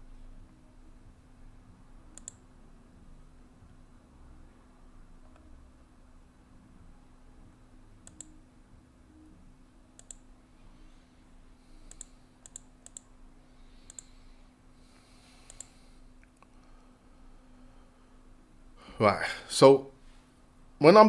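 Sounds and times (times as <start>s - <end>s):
faint low hum: 0.0s - 21.0s
computer mouse clicking: 2.1s - 2.4s, 8.0s - 8.4s, 10.0s - 10.3s, 11.8s - 13.1s, 13.8s - 14.2s, 15.4s - 16.5s.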